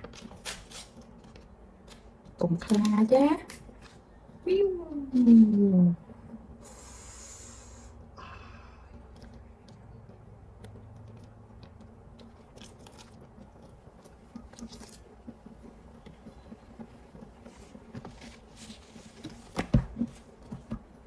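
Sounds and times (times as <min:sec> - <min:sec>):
small crackles and clicks: 0:00.0 - 0:05.7, 0:08.8 - 0:21.0
face mask rustling: 0:12.4 - 0:21.0.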